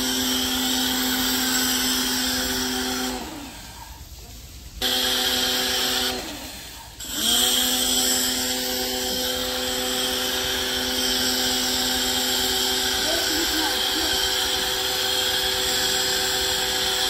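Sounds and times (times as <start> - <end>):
pressure washer motor whining: 0.0 - 3.8, 4.8 - 17.0
water spray hiss: 0.0 - 17.0.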